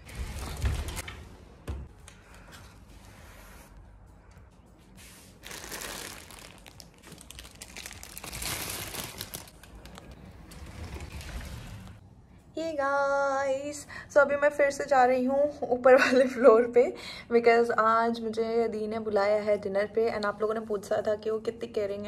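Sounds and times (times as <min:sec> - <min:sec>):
plastic garment covers crinkling: 0:05.3 - 0:12.0.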